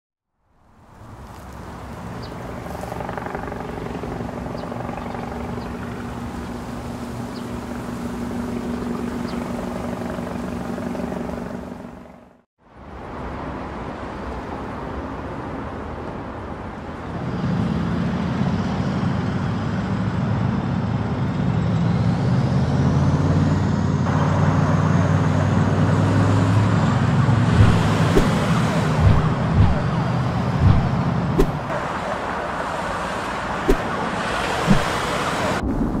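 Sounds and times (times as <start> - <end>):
car engine running: 2.4 - 12.3, 27.4 - 31.9
faint rising whine: 2.5 - 12.2, 27.5 - 32.0
sharp knocks: 34.7 - 35.0.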